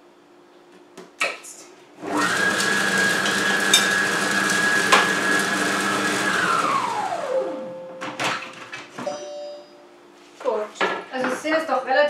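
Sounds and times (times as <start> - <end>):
kitchen machine motor whining: 2.0 - 7.8.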